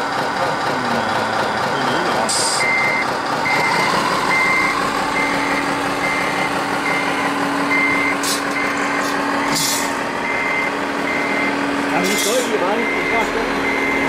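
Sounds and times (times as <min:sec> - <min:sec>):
reversing warning beeps: 0:02.4 - 0:09.1, 0:10.2 - 0:14.0
short hisses: 0:09.5 - 0:10.0.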